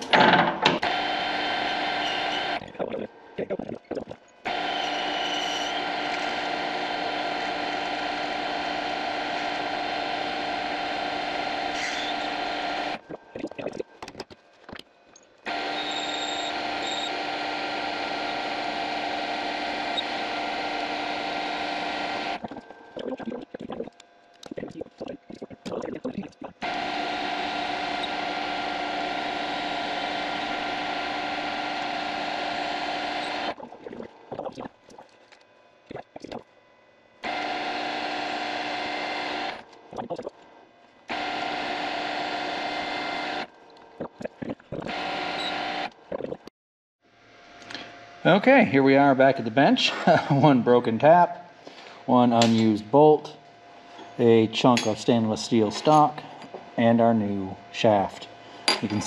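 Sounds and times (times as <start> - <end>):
metal lathe running with gear whine: 0.1 - 2.6, 4.5 - 13.0, 15.5 - 22.4, 26.6 - 33.6, 37.2 - 39.6, 41.1 - 43.5, 44.9 - 45.9.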